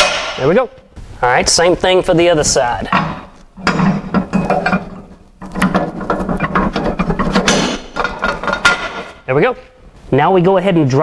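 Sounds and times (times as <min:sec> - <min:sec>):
metal rattling and scraping: 0:01.9 - 0:09.3.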